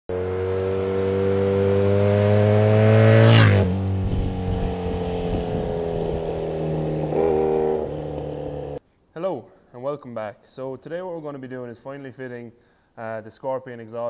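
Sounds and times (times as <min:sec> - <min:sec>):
motorcycle passing by: 0:00.1 - 0:08.8.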